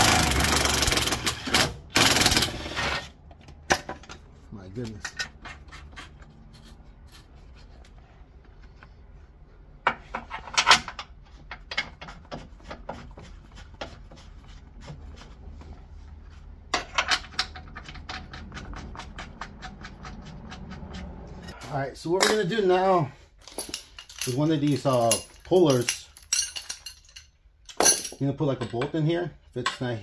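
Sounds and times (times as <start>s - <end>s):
metal bolts clicking and clinking: 16.7s - 18.6s, 23.4s - 30.0s.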